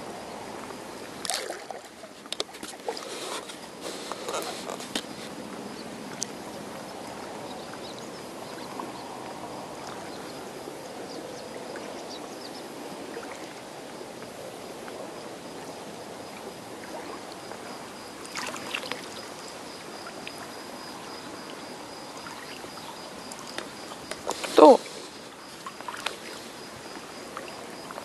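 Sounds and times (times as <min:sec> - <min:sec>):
shallow seawater washing: 0:00.0 - 0:28.0
small splashes: 0:01.1 - 0:05.3, 0:16.3 - 0:28.0.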